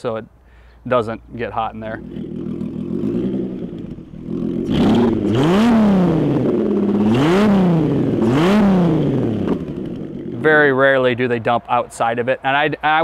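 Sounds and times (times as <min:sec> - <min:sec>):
boat engine idling and revving: 0:02.0 - 0:10.7.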